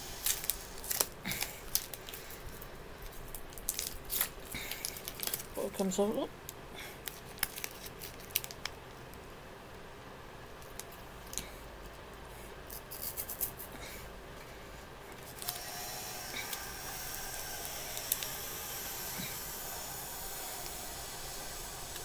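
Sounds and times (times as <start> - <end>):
steady hiss: 0.0 - 3.3, 11.5 - 22.0
foil wrapper crinkling: 0.1 - 6.2, 7.0 - 8.9, 15.2 - 22.0.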